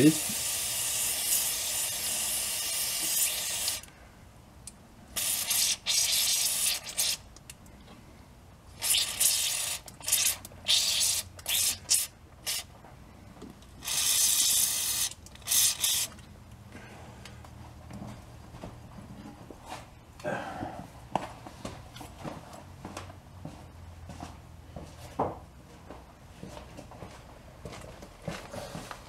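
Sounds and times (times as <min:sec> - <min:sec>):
aerosol can spraying: 0:00.1 - 0:03.9, 0:05.2 - 0:07.2, 0:08.8 - 0:12.7, 0:13.8 - 0:16.2.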